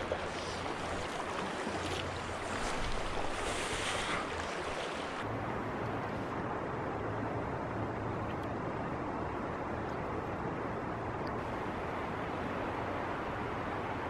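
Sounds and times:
river current rushing: 0.0s - 9.6s.

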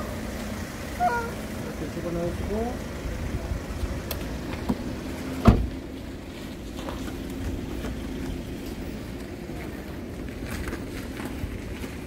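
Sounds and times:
low steady rumble: 0.0s - 12.0s
sharp thump: 5.4s - 5.7s.

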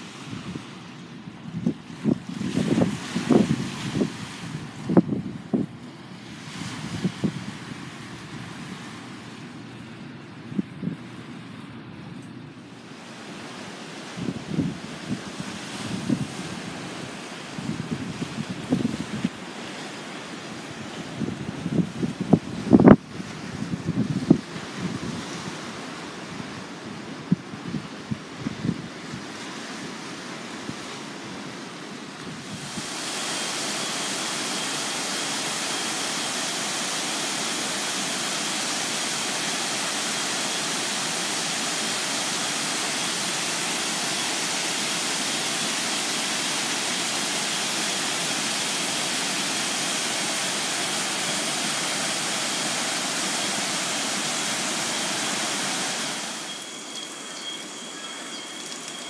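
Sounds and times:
surf washing over rocks: 0.0s - 9.6s, 12.7s - 59.0s
water pouring over a dam: 32.4s - 56.7s
small waterfall trickling: 32.5s - 59.0s.

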